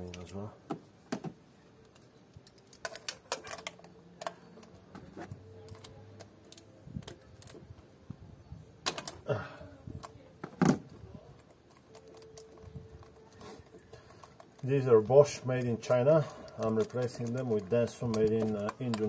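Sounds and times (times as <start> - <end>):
small tool clicks and clinks: 11.3 - 19.0.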